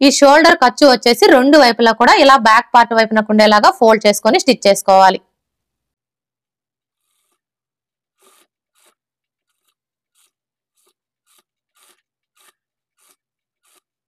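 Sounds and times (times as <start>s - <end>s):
scissors snipping cloth: 8.2s - 14.0s.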